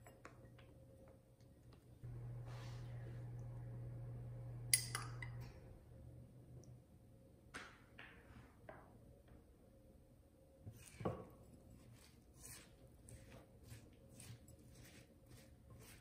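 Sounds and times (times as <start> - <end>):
low steady hum: 0.0 - 7.6
spoon clinking glass bowl: 4.7 - 5.4.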